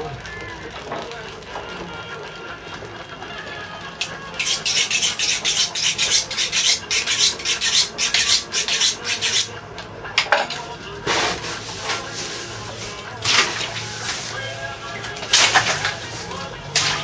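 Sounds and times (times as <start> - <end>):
knife scraping on sharpening steel: 4.4 - 9.5.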